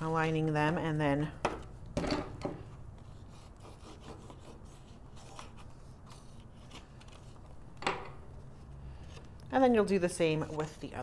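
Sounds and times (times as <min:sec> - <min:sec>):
cardstock rustling and rubbing: 0:03.0 - 0:07.6.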